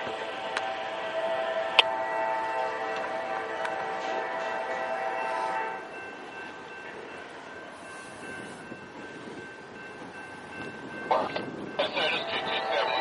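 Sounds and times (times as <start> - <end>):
train horn: 0.0 - 5.9
distant train rumble: 0.0 - 13.0.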